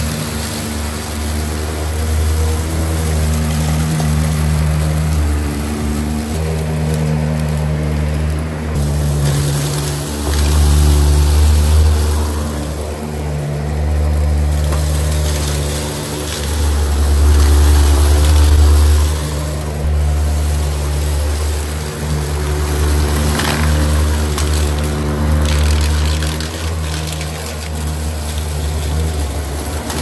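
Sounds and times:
vacuum cleaner on carpet: 0.0 - 30.0.

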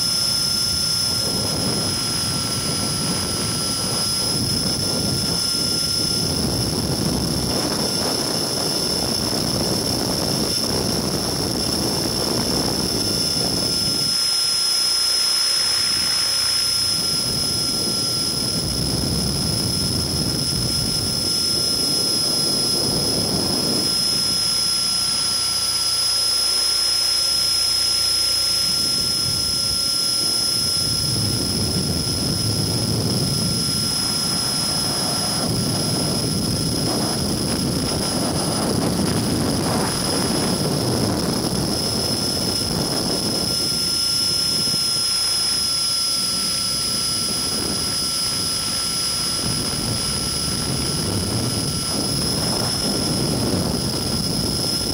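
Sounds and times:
electric motor high whine: 0.0 - 54.9
low rushing noise: 30.6 - 43.4.

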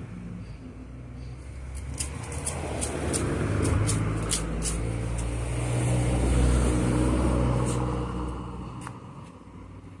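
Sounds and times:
vehicle engine passing: 1.6 - 10.0.

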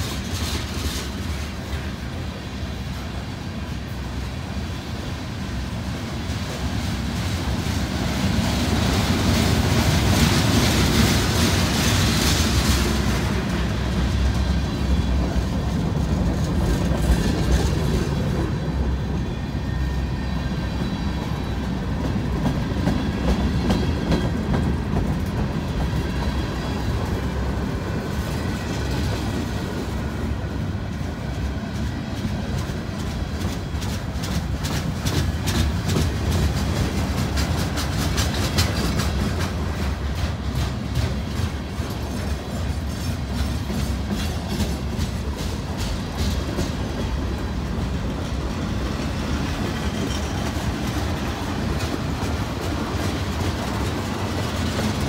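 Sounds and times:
clickety-clack over rail joints: 0.0 - 55.0
steel wheels rumbling on rail: 0.0 - 55.0.

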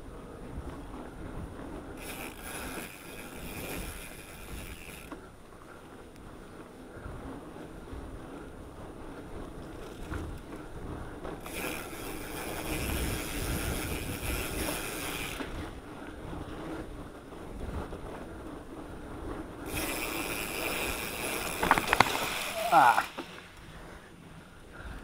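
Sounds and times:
bike rattling: 0.0 - 25.0
bike tyres rumbling on dirt: 0.0 - 25.0
wind on microphone: 6.2 - 23.0.

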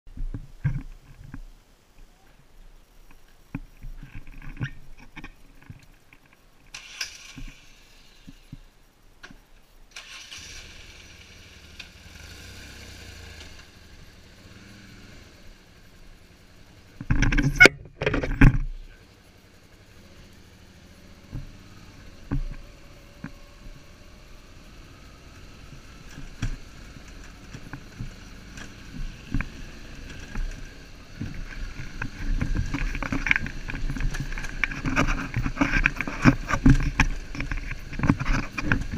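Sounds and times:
knocks and clicks from rough ground: 0.1 - 2.1, 3.0 - 7.6, 16.4 - 19.6, 21.1 - 24.0, 24.6 - 38.9
motorcycle engine running: 10.7 - 38.9.

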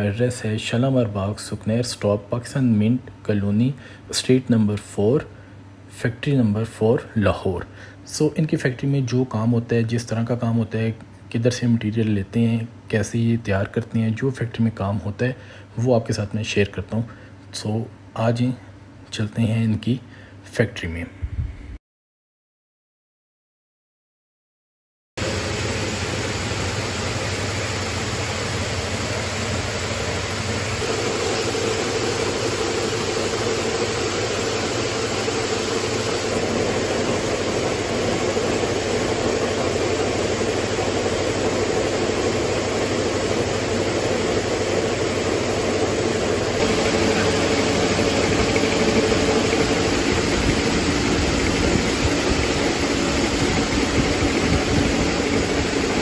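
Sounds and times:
steady hum: 25.2 - 56.0
braiding machines rattling: 46.6 - 56.0.

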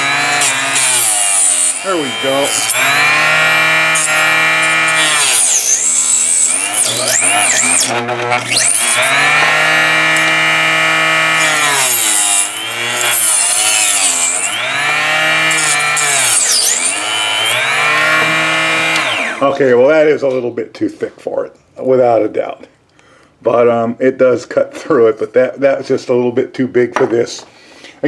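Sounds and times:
cut-off saw whining through plastic: 0.0 - 19.6.

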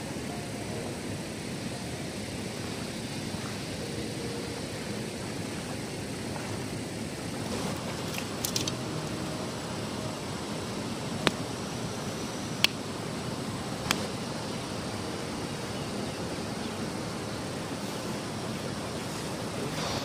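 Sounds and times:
flooded river rushing: 0.0 - 20.0
rustling clicks: 8.0 - 8.8.

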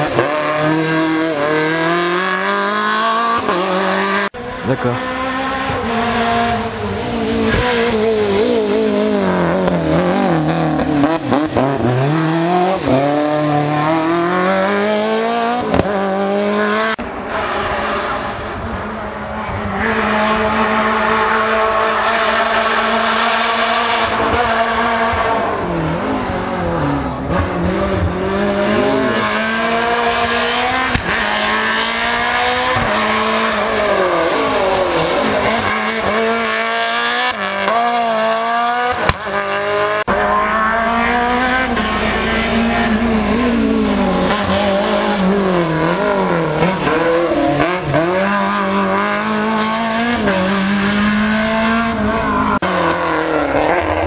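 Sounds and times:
rally car engines revving: 0.0 - 54.0.

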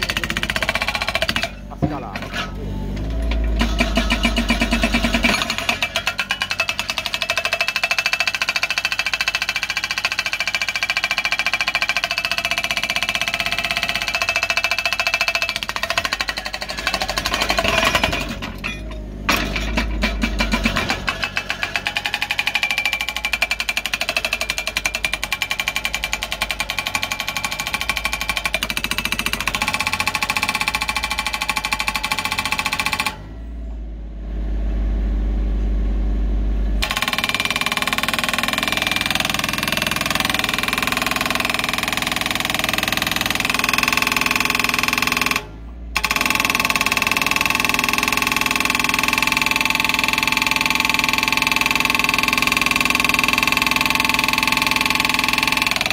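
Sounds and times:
hydraulic breaker hammering rock: 0.0 - 2.6, 3.2 - 33.3, 36.8 - 55.9
excavator engine running: 0.0 - 55.9.

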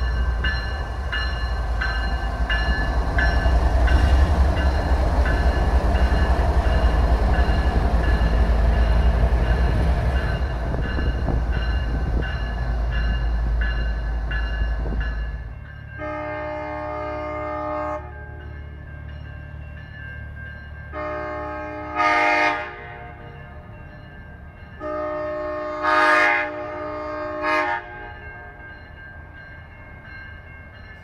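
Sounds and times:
locomotive bell ringing: 0.0 - 17.4, 18.0 - 21.9, 22.9 - 25.8, 28.0 - 31.0
diesel locomotive rumbling past: 0.0 - 31.0
music: 11.1 - 16.0, 18.4 - 21.0, 23.3 - 24.8, 28.6 - 31.0.

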